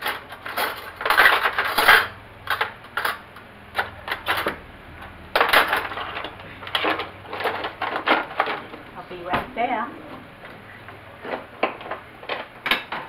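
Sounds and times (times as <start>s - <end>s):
metal utensils rattling: 0.0s - 4.6s, 5.3s - 8.8s.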